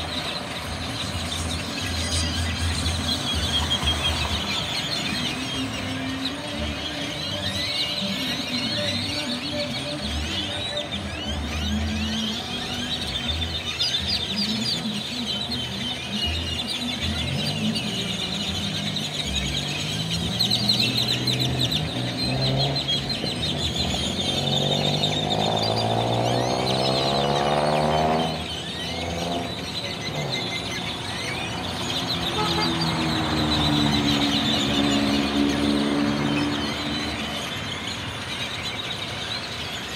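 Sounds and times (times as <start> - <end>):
blackbirds chattering: 0.0 - 39.9
vehicle droning: 17.0 - 39.9
vehicle engine rising in pitch: 20.0 - 37.8.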